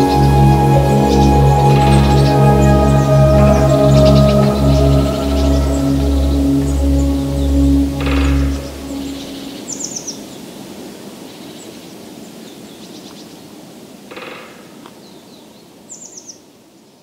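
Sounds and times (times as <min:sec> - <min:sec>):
louder call: 0:00.0 - 0:09.7
high chirps: 0:00.0 - 0:10.1
soft steady hiss: 0:00.0 - 0:17.0.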